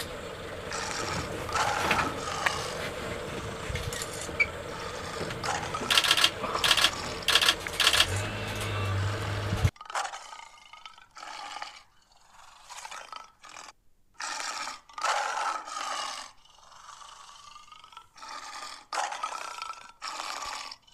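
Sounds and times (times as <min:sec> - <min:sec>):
large animal roaring calls: 0:00.0 - 0:09.7.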